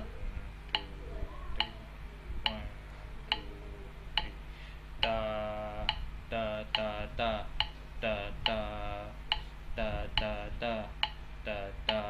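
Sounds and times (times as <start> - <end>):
faint voice: 0.0 - 4.2
metronome ticking: 0.0 - 4.4, 5.0 - 12.0.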